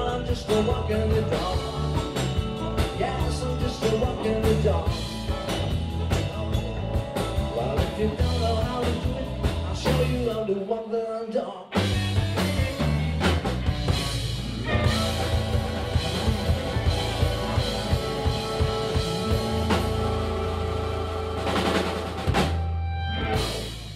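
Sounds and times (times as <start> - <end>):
blues band playing: 0.0 - 10.5, 11.8 - 23.9
harmonica: 14.4 - 23.4.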